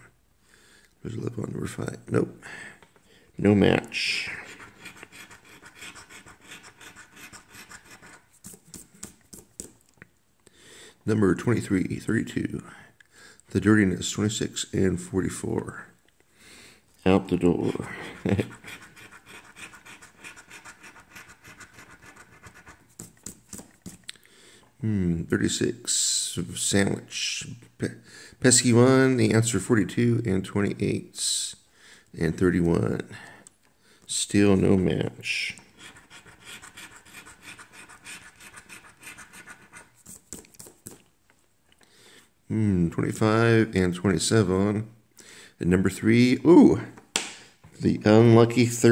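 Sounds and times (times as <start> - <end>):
lottery ticket being scratched: 4.0 - 9.7, 17.6 - 24.0, 35.7 - 41.0.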